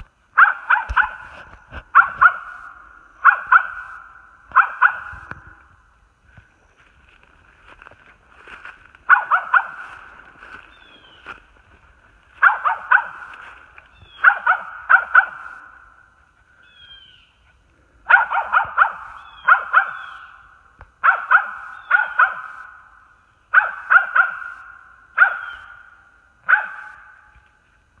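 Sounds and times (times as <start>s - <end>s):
dog barking: 0.4s - 5.4s, 9.0s - 10.6s, 12.4s - 13.6s, 14.2s - 15.9s, 18.0s - 20.3s, 21.0s - 22.8s, 23.5s - 27.3s.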